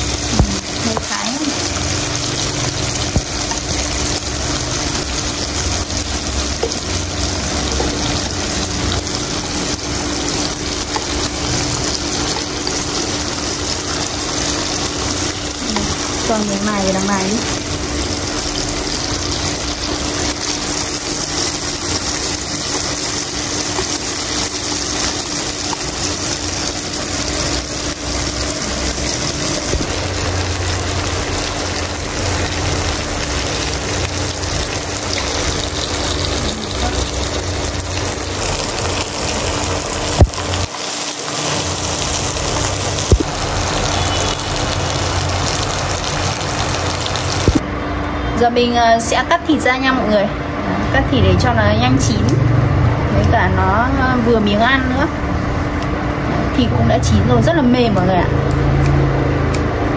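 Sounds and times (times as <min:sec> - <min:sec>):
meat sizzling in pan: 0:00.0 - 0:47.6.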